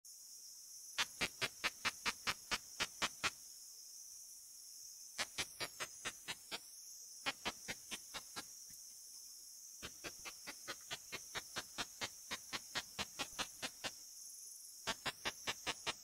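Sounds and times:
detector steady high hiss: 0.1s - 16.0s
katydid sharp clicks: 1.0s - 3.4s, 5.2s - 6.6s, 7.3s - 8.8s, 9.8s - 14.0s, 14.9s - 16.0s.

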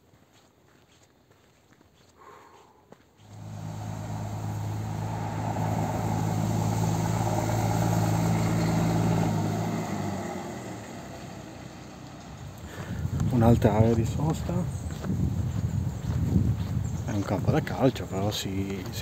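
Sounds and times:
vehicle engine low hum: 3.2s - 17.5s.

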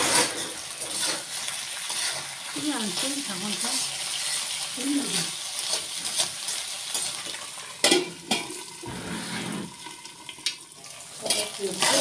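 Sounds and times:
metal spatula scraping wok: 0.0s - 9.9s, 11.2s - 12.0s
food sizzling in a wok: 0.0s - 12.0s
water poured into hot pan hissing: 0.0s - 12.0s
spatula clanking on wok: 11.2s - 12.0s.

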